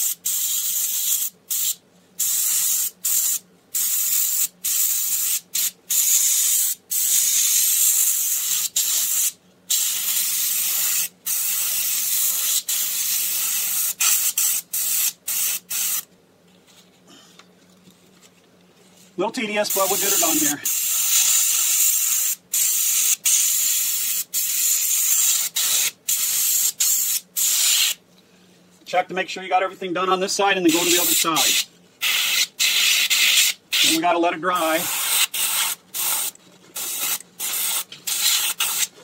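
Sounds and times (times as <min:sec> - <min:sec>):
airbrush spraying hiss: 0:00.0 - 0:16.1, 0:19.7 - 0:28.0, 0:30.7 - 0:34.0, 0:34.6 - 0:38.9.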